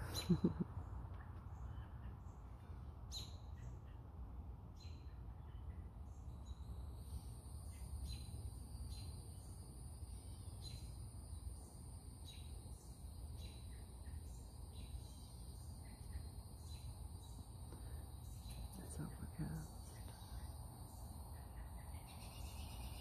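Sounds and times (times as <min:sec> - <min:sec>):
short sharp insect call: 0:07.0 - 0:18.7.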